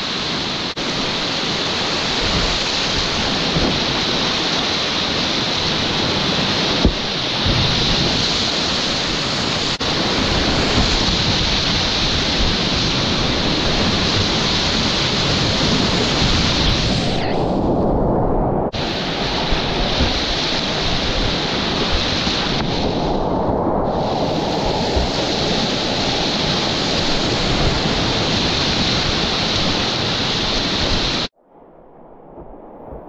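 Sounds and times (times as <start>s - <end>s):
whitewater rushing: 0.0s - 17.4s, 18.7s - 31.3s.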